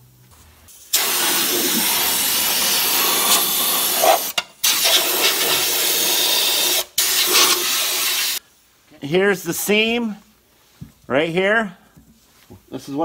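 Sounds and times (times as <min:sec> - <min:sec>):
spray gun hissing: 0:00.7 - 0:08.4.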